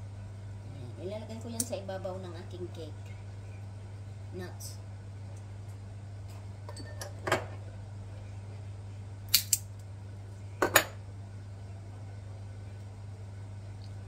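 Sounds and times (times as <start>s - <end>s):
steady low hum: 0.0s - 14.0s
nutcracker cracking nut shells: 9.3s - 9.7s.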